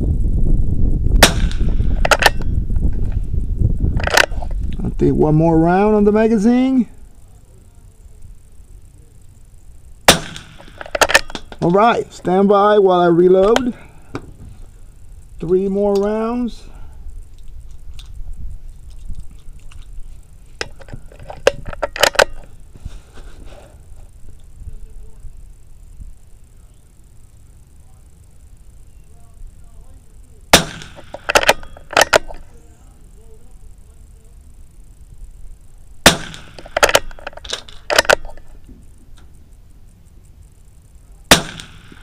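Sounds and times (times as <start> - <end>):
wind rumble on microphone: 0.0 - 6.3, 14.2 - 23.5
rifle shot: 1.2 - 2.5, 10.1 - 11.6, 30.5 - 32.4, 36.0 - 38.3, 41.3 - 42.0
cartridges clicking into magazine: 1.3 - 2.5, 4.0 - 4.4, 10.2 - 11.7, 20.6 - 22.5, 30.6 - 32.5, 36.0 - 38.5.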